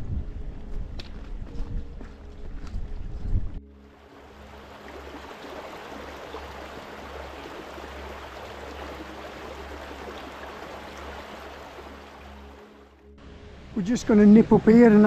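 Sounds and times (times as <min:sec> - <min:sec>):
stream running over stones: 0:03.8 - 0:12.9.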